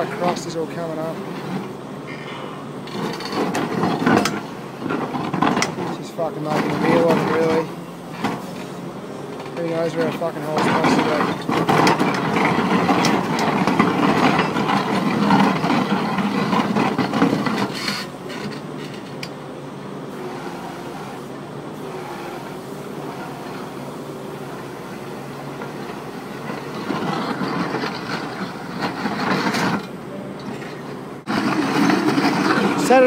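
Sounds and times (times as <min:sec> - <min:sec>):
auger grinding into rocky ground: 0:02.8 - 0:08.7, 0:09.4 - 0:19.2, 0:25.4 - 0:33.0.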